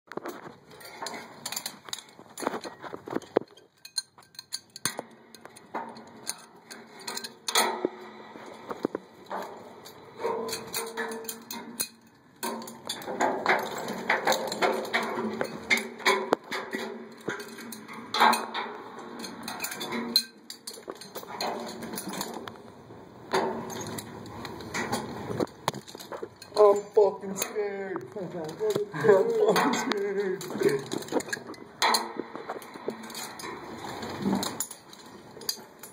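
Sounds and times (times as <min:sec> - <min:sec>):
metallic clinks and knocks: 0:00.1 - 0:22.6, 0:23.3 - 0:35.9
rustling or scraping: 0:00.1 - 0:35.9
rustling: 0:23.4 - 0:35.9.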